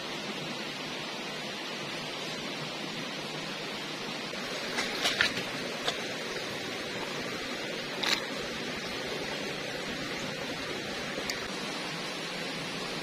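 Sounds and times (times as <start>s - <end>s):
stream running over pebbles: 0.0s - 13.0s.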